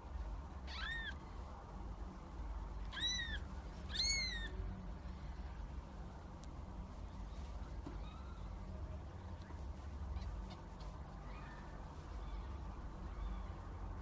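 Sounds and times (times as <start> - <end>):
low steady hum: 0.0 - 14.0
kitten mewing: 0.7 - 1.2, 2.9 - 4.6.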